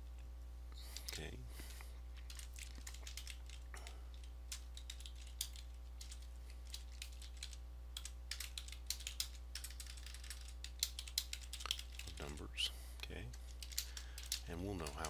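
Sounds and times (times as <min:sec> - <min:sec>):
steady low hum: 0:00.0 - 0:15.0
typing on keyboard: 0:02.2 - 0:12.4, 0:13.3 - 0:15.0.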